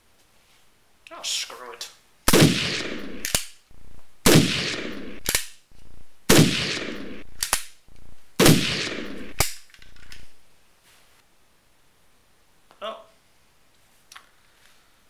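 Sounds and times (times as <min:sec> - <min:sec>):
toy gun shots: 0:02.3 - 0:03.6, 0:04.2 - 0:05.6, 0:06.3 - 0:07.8, 0:08.4 - 0:09.7.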